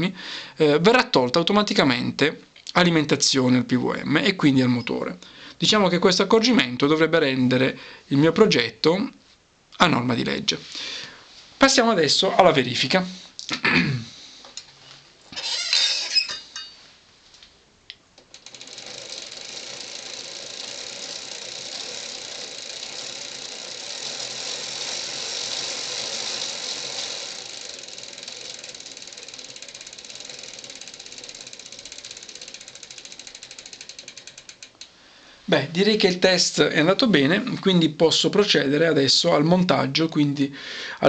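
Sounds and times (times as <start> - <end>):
freewheel ratcheting clicks: 18.2 - 35.0
bicycle chain running: 18.3 - 34.9.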